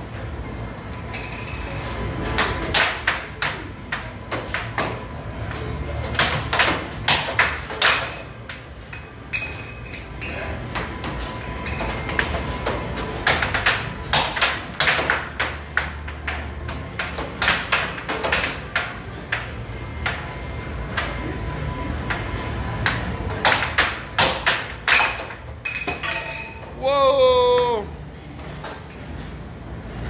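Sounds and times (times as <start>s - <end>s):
air hockey puck clacking: 2.3s - 5.0s, 6.0s - 9.6s, 10.7s - 21.3s, 22.0s - 26.5s.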